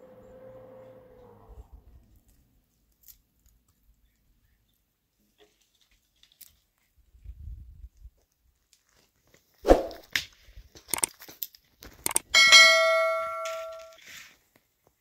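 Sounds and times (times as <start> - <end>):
metal object struck ringing: 12.4 - 14.0.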